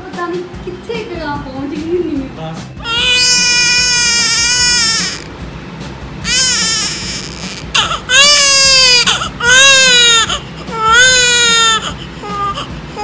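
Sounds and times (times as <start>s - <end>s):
newborn baby crying: 2.8s - 5.3s, 6.3s - 13.0s.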